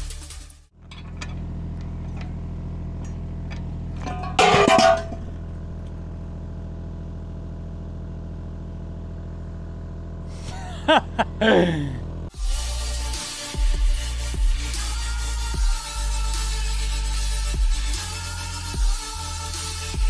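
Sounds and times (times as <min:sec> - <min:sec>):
diesel engine idling: 0:00.7 - 0:12.3
loud metallic clank: 0:03.0 - 0:05.5.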